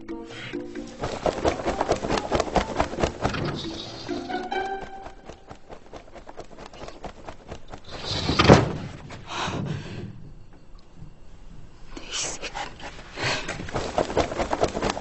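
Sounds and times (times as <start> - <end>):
wooden sliding door shutting: 8.1 - 9.0.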